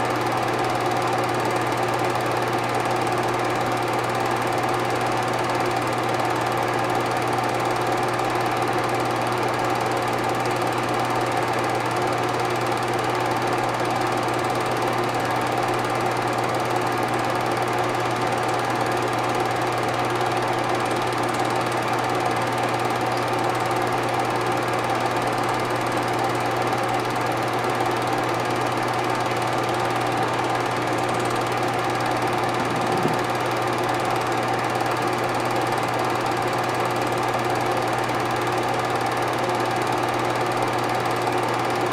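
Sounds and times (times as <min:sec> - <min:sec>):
film projector whirring and clattering: 0:00.0 - 0:41.9
constant hum: 0:32.4 - 0:33.4.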